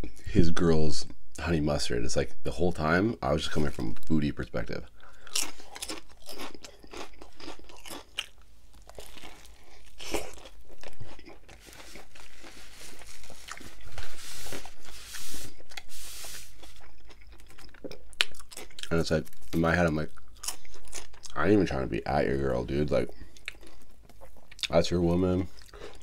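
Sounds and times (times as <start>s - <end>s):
man chewing crunchy food: 5.0s - 21.8s, 22.7s - 24.8s, 25.4s - 26.0s.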